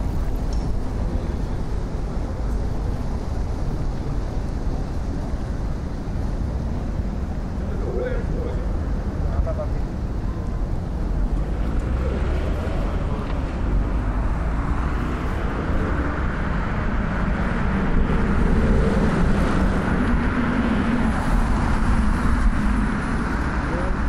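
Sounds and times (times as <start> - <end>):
low rumble of road traffic: 0.0 - 24.0
vehicle passing close: 11.2 - 24.0.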